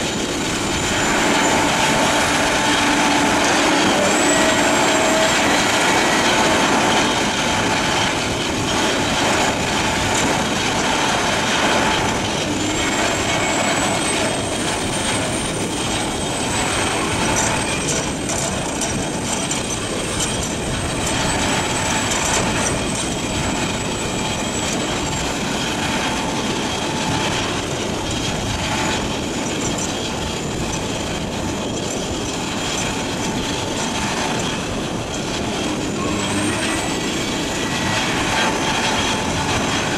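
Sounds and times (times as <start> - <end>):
high thin whine: 0.0 - 8.7, 34.3 - 39.9
heavy engine drone: 0.0 - 39.9.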